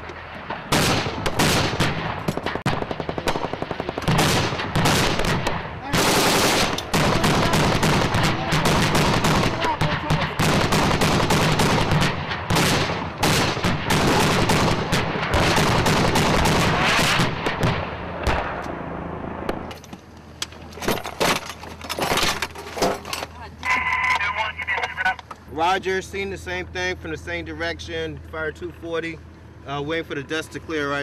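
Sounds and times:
automatic weapons fire: 0.6 - 18.6
vehicle engine running: 2.0 - 16.8, 17.5 - 31.0.

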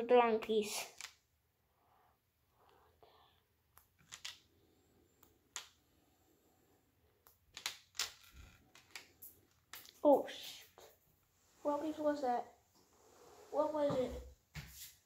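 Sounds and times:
plastic toy bricks clicking: 1.0 - 1.2, 4.0 - 4.4, 7.3 - 10.0.

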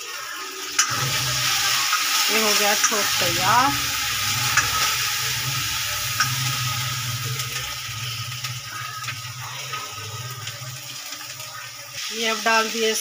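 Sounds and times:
food sizzling in oil: 0.0 - 13.0
ladle clicking against pan: 2.7 - 3.1, 4.5 - 5.0.

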